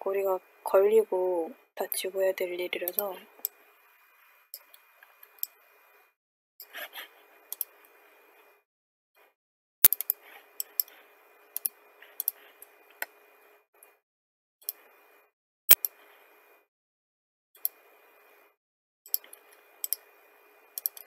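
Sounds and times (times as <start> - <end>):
computer mouse clicking: 2.8 - 3.6, 11.6 - 13.2, 19.1 - 20.0, 20.8 - 21.0.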